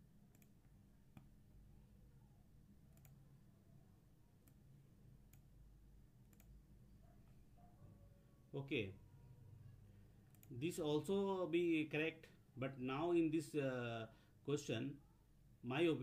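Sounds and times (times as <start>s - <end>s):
computer mouse clicks: 0.3s - 1.3s, 2.9s - 3.2s, 5.3s - 5.5s, 6.3s - 6.6s, 10.2s - 10.6s.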